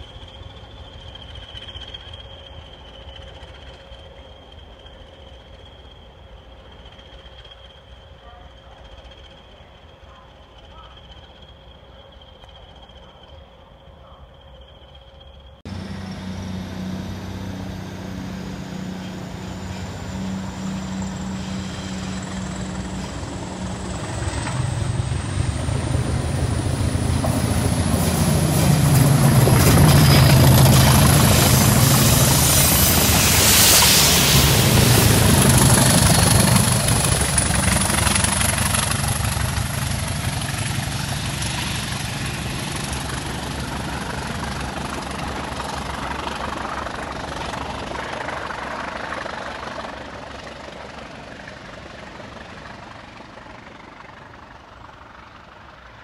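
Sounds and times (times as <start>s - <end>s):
diesel locomotive passing: 15.7s - 45.9s.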